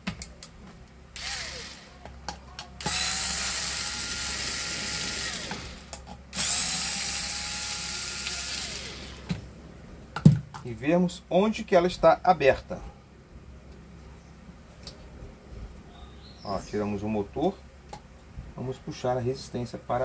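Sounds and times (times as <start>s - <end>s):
electric screwdriver motor: 1.2s - 1.9s, 2.8s - 9.3s.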